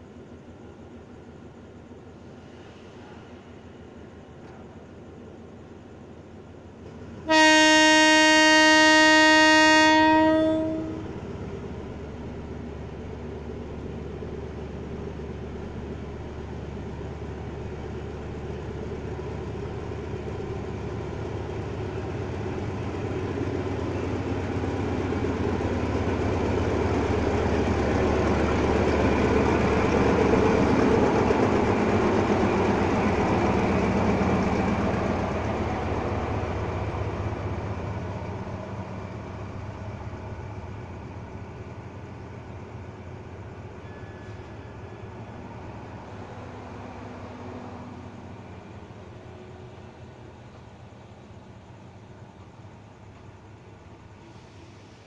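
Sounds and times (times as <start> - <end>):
train engine rumble and running noise: 0.0 - 55.0
locomotive horn blast: 7.2 - 11.1.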